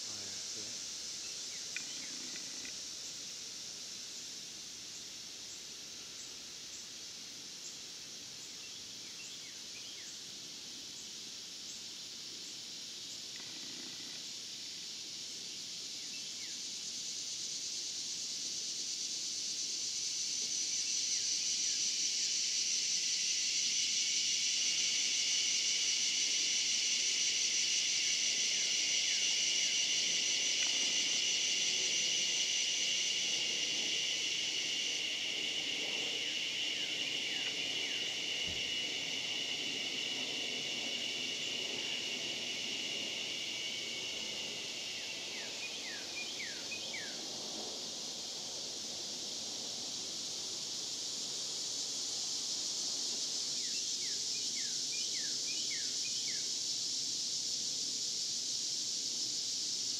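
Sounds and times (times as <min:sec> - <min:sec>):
cicadas droning: 0:00.0 - 0:59.9.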